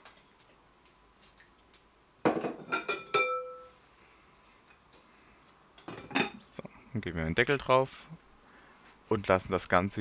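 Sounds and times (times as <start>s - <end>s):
glass kitchenware clinking: 2.3s - 3.8s.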